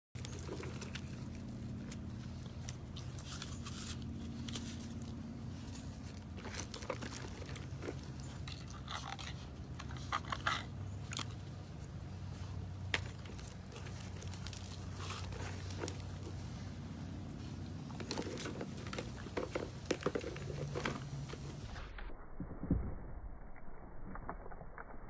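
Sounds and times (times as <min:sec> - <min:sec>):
low hum: 0:00.2 - 0:25.0.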